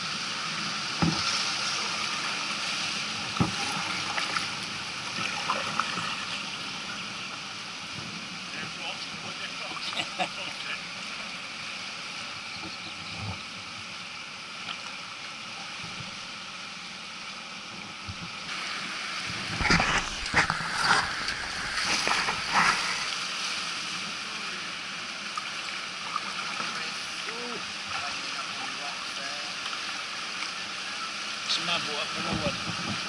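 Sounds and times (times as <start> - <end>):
rush of moving water: 0.0 - 33.0
paddle splashing in water: 0.9 - 6.4, 18.5 - 24.0, 25.2 - 31.2.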